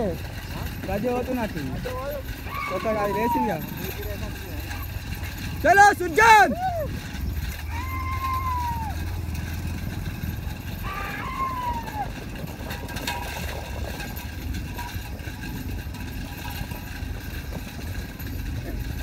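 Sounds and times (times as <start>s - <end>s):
vehicle engine droning: 0.0s - 19.0s
long high call: 2.1s - 4.9s, 5.7s - 9.5s, 10.4s - 12.3s.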